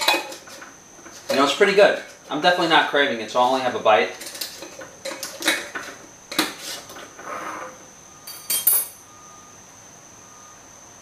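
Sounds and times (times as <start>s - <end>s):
ringing metallic clink: 8.2s - 9.1s
glass jar clinking on counter: 8.3s - 9.0s.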